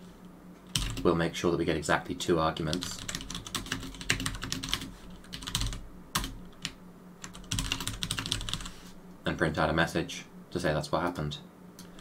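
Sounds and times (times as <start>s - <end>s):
typing on computer keyboard: 0.8s - 1.0s, 2.7s - 8.7s.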